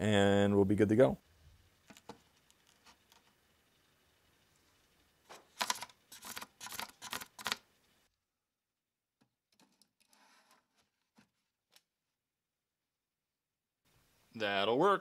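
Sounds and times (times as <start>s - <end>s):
faint clicks and rubs: 1.8s - 3.4s, 9.5s - 11.9s.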